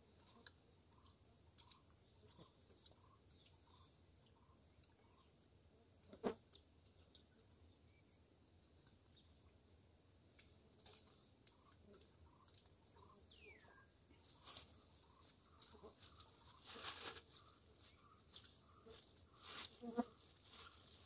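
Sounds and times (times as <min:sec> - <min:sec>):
plastic bag crinkling: 0:15.7 - 0:21.0.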